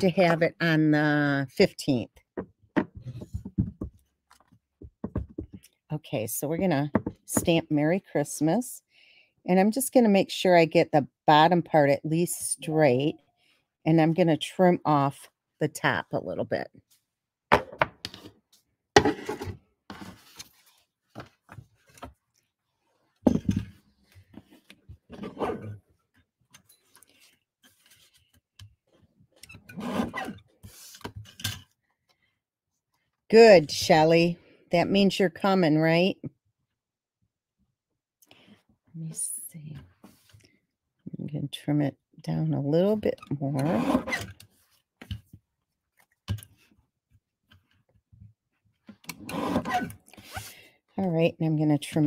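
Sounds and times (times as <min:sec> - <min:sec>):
cardstock knocks and taps: 0:02.4 - 0:04.0, 0:04.8 - 0:05.6
trimmer blade scraping rasp: 0:43.6 - 0:44.3, 0:49.1 - 0:50.5.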